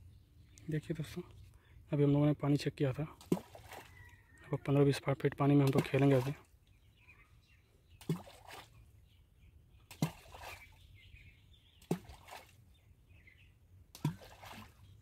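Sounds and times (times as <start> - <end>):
clay balls splashing into water: 3.2 - 4.0, 5.5 - 6.4, 11.8 - 12.5, 14.0 - 14.7.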